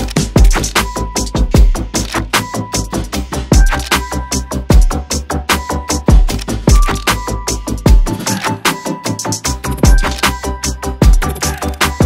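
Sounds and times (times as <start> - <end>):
electronic music with drum beat: 0.0 - 12.0
deep booming kick drums: 1.4 - 1.9, 7.9 - 8.1.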